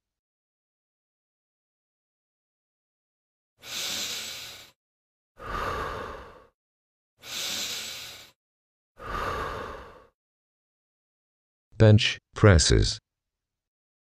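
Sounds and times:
person breathing: 3.6 - 4.8, 5.4 - 6.6, 7.2 - 8.4, 9.0 - 10.2.

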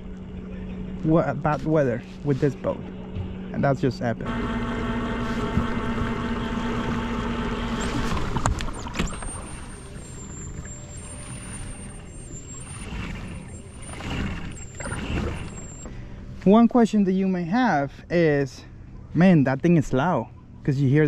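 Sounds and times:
electric motor and gears whining: 0.0 - 16.0
faint hum: 0.0 - 21.0.

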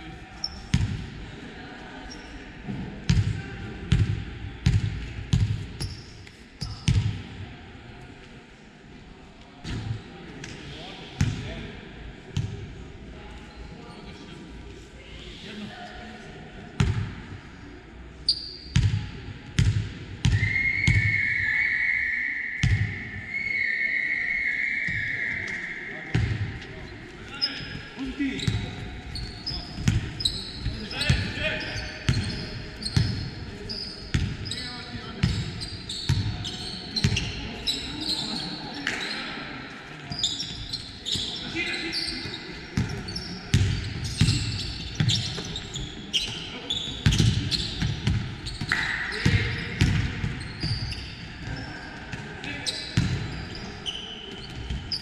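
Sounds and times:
basketball bouncing on court: 18.8 - 19.0, 19.6 - 20.4, 29.5 - 31.3, 34.1 - 34.4, 42.8 - 45.5, 47.0 - 52.2, 53.0 - 53.4
sneakers squeaking on court: 27.3 - 39.3, 40.1 - 55.0.

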